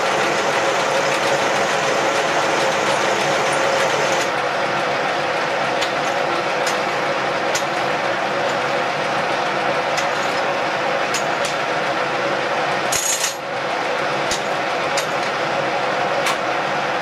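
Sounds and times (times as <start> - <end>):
milling machine gear hum: 0.0 - 17.0.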